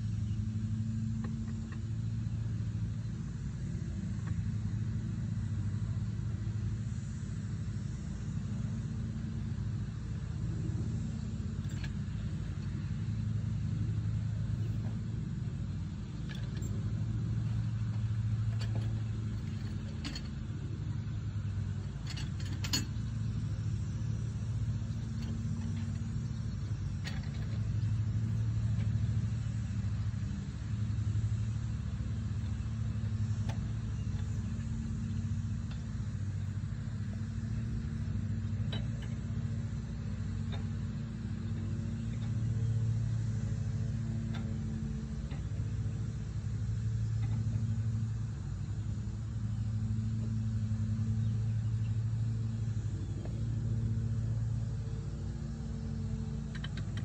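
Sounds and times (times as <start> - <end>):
low engine hum: 0.0 - 57.0.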